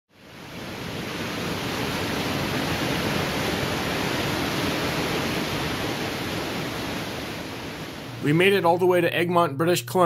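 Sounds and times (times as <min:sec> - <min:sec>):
whitewater rapids rushing: 0:00.3 - 0:08.2.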